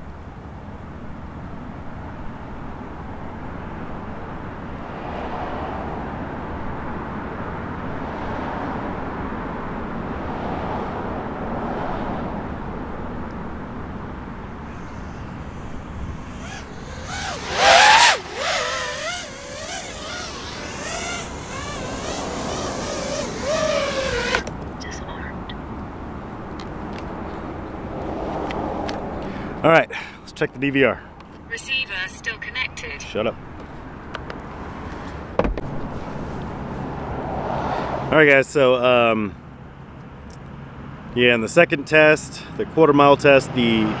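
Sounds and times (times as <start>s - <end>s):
quadcopter motors whining: 14.4s - 25.0s
steady rushing noise: 14.5s - 25.3s.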